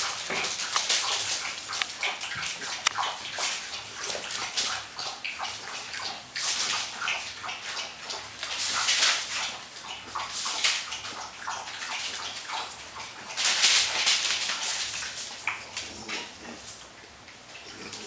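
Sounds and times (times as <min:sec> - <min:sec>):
puppies scrabbling on wooden floor: 0:00.0 - 0:04.8.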